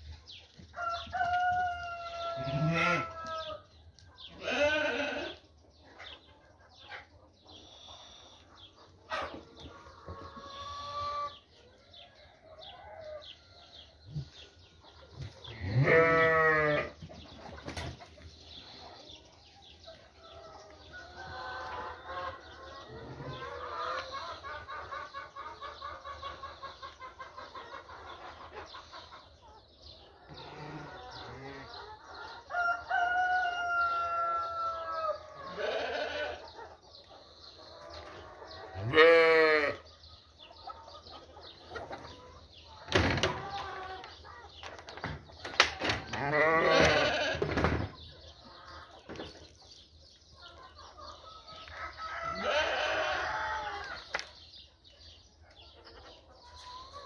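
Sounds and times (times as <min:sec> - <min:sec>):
sheep bleating: 0:02.4 - 0:03.2, 0:04.4 - 0:05.4, 0:15.6 - 0:16.9, 0:35.5 - 0:36.4, 0:38.8 - 0:39.8, 0:46.2 - 0:47.4, 0:52.4 - 0:53.2
rooster crowing: 0:32.5 - 0:35.8, 0:52.0 - 0:53.9.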